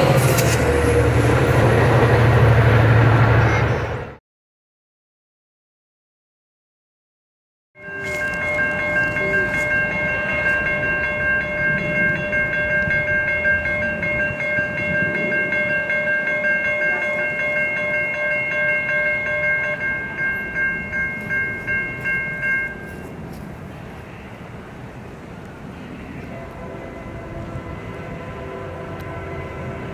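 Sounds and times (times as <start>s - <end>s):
crossing warning bell ringing: 7.8s - 24.1s, 25.8s - 29.9s.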